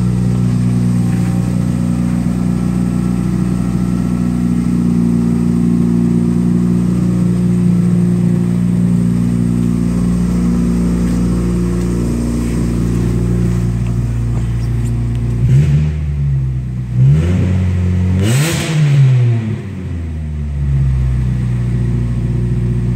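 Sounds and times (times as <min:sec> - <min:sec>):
car engine idling and revving: 0:00.0 - 0:22.9.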